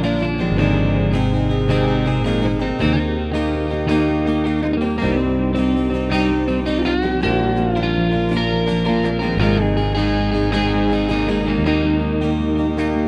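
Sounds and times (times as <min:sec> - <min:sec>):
acoustic guitar strumming: 0:00.0 - 0:13.0
electric guitar picking a melody: 0:00.0 - 0:13.0
low held notes: 0:00.0 - 0:13.0.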